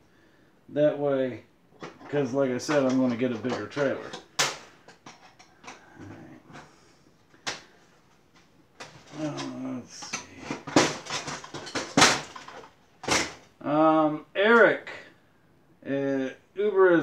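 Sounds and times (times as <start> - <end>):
metal clicks and knocks: 1.8 - 6.1, 8.4 - 13.5.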